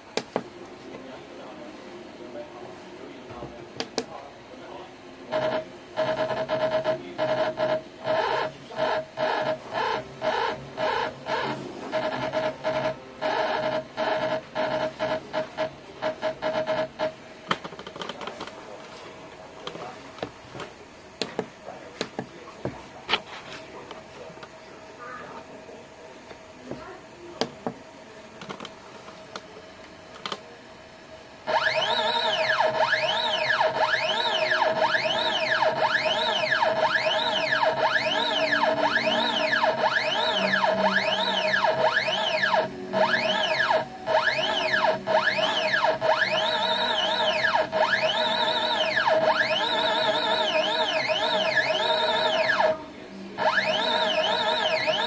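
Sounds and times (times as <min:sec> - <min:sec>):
stepper motor buzzing whine: 0:05.3 - 0:17.2, 0:31.4 - 0:52.8, 0:53.4 - 0:55.0.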